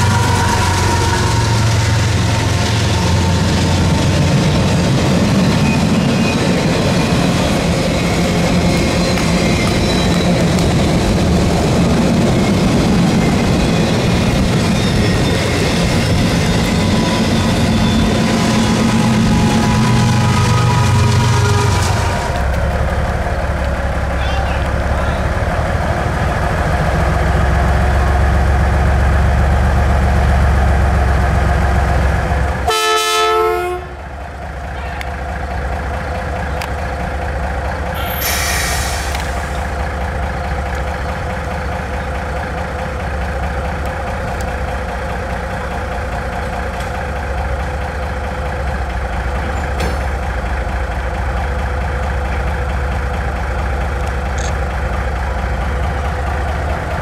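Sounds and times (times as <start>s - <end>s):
locomotive horn toot: 0.0s - 3.5s, 19.3s - 22.4s, 32.7s - 34.0s
diesel locomotive idling: 0.0s - 57.0s
hiss of air: 38.2s - 39.6s.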